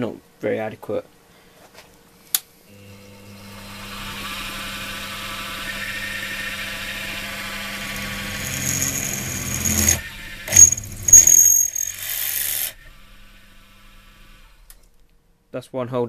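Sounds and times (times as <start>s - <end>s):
milling machine motor running: 2.7s - 14.7s
drill screaming in metal: 3.3s - 14.6s.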